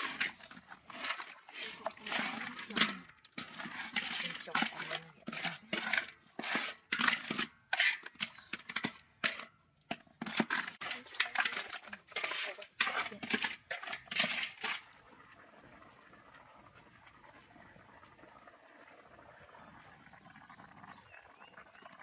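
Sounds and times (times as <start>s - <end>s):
spatula scraping a pan: 0.0s - 14.8s.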